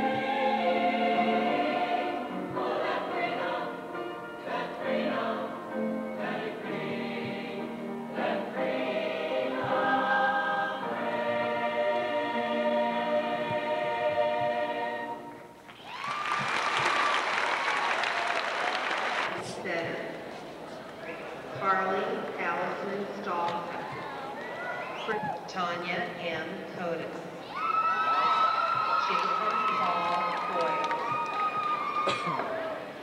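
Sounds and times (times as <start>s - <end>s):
children's choir singing: 0.0s - 15.5s, 30.5s - 33.0s
audience applause: 15.8s - 19.4s, 27.7s - 32.8s.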